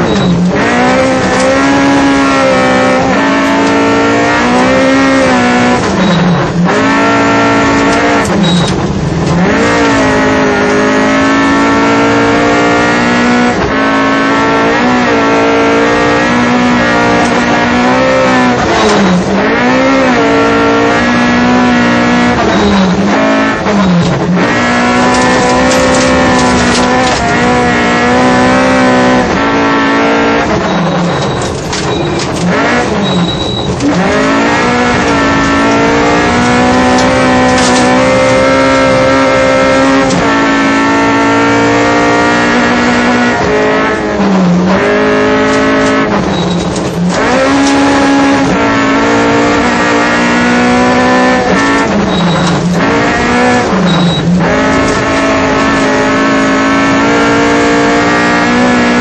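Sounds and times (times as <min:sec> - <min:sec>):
car engine at high revs: 0:00.0 - 0:59.0.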